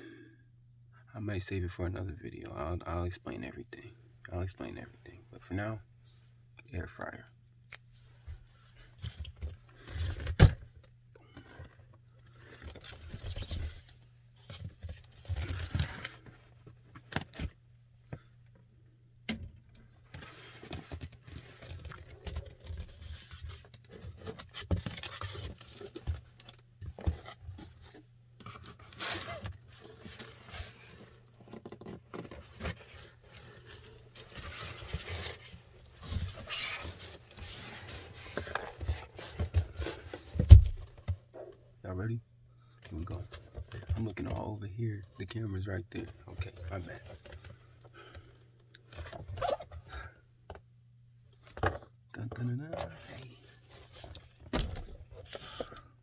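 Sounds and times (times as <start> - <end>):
objects scraping and rustling: 20.1 - 41.5.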